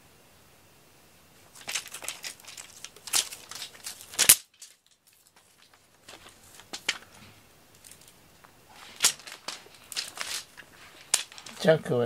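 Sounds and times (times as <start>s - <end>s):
cat toy scratching and rustling: 1.5s - 7.0s, 8.7s - 11.7s.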